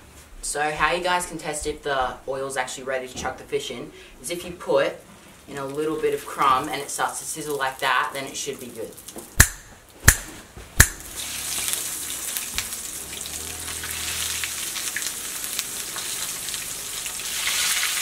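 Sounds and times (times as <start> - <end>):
fish frying in hot oil: 11.0 - 18.0.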